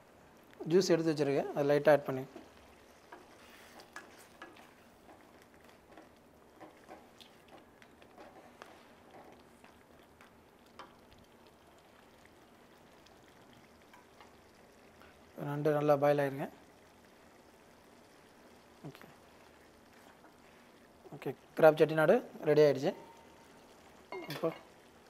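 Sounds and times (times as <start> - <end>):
gravy simmering pops: 0.0 - 25.0
wooden spatula stirring gravy: 2.2 - 15.2.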